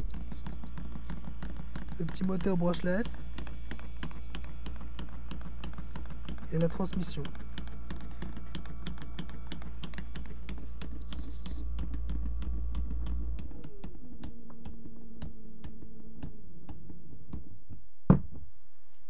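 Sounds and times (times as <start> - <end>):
electric motor humming and whining: 0.0 - 17.5.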